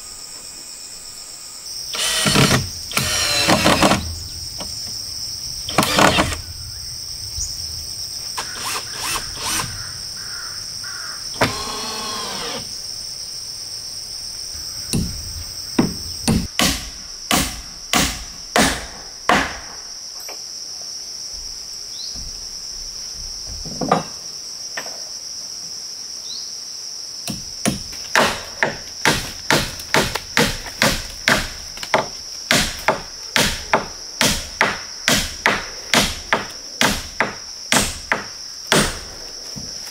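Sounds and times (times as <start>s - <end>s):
high insect drone: 0.0s - 39.9s
hand tool striking wood: 15.8s - 19.8s, 27.3s - 39.0s.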